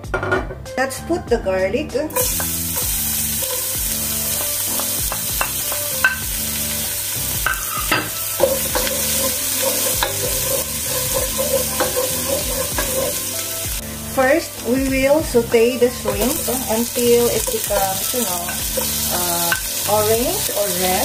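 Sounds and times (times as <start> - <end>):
garlic sizzling in oil: 2.1 - 21.0
wooden spoon scraping pot: 7.8 - 13.6, 15.9 - 19.6.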